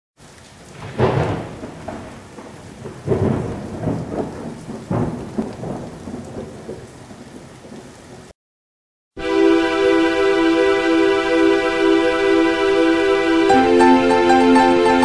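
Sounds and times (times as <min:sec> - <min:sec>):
steady rain: 0:00.2 - 0:08.4, 0:09.2 - 0:15.0
thunder rolling: 0:00.7 - 0:07.9.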